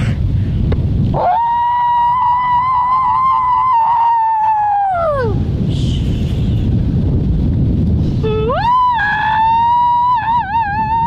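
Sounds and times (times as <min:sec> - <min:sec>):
wind rumble on microphone: 0:00.0 - 0:11.0
person howling: 0:01.2 - 0:05.5.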